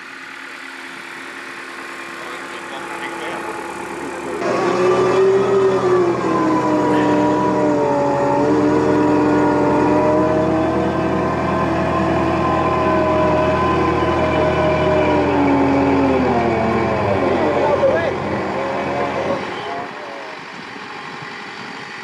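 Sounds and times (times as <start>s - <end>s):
diesel engine humming: 0.0s - 22.0s
hydraulic whine: 0.0s - 22.0s.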